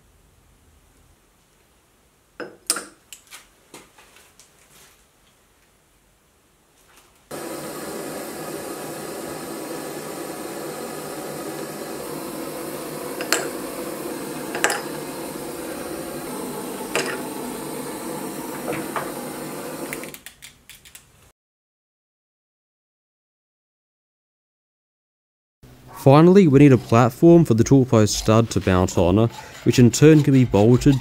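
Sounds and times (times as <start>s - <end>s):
hot steel sizzling in oil: 7.3s - 20.2s.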